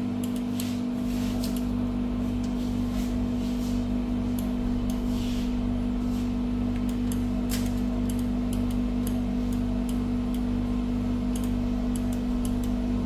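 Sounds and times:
electrical hum: 0.0s - 13.0s
pulsing low tone: 2.8s - 13.0s.

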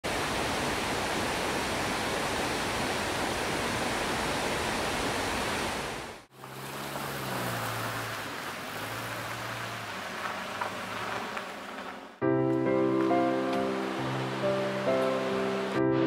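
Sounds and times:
mountain river rushing: 0.1s - 12.2s, 12.8s - 16.0s.

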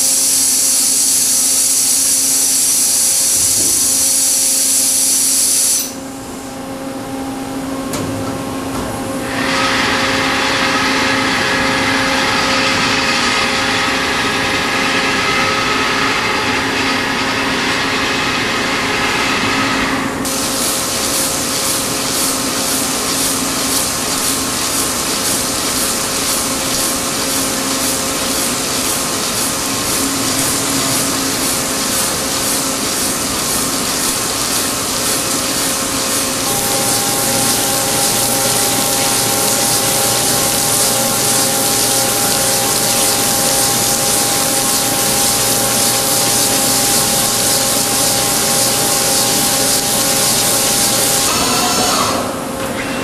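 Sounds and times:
machine cutting steel: 0.0s - 6.0s, 9.2s - 52.4s
machine whine: 0.0s - 53.0s
higher whine: 36.4s - 48.8s.

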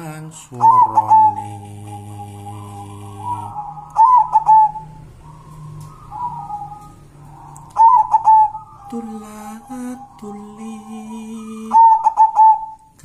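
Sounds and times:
man singing: 0.0s - 3.6s, 8.9s - 12.0s
dove cooing: 0.6s - 13.0s.

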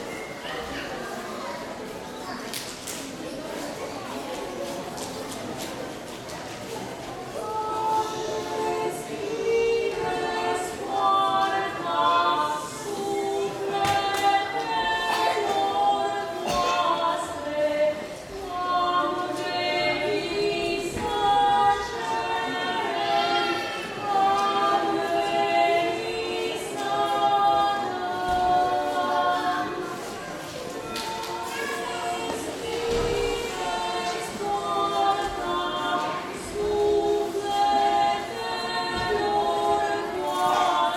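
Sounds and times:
women singing unaccompanied: 7.3s - 40.9s.

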